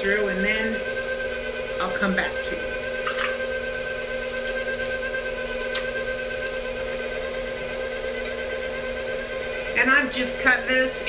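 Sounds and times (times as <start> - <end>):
stand mixer motor running: 0.0 - 11.0.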